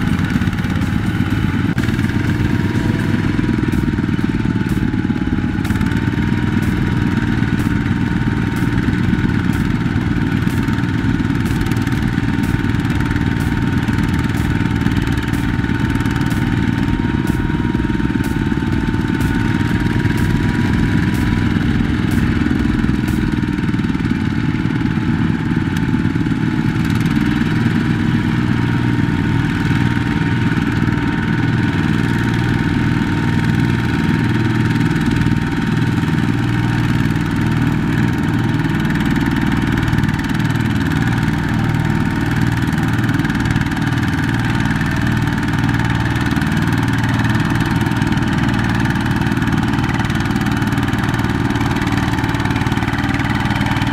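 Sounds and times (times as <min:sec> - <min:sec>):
diesel tractor engine under load: 0:00.0 - 0:53.9.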